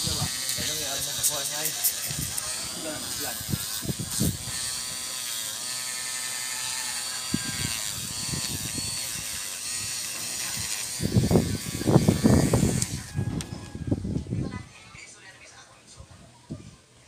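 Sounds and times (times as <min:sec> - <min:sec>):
nail brush scratchy brushing: 0:00.0 - 0:13.2
electric nail drill whining: 0:00.0 - 0:14.0.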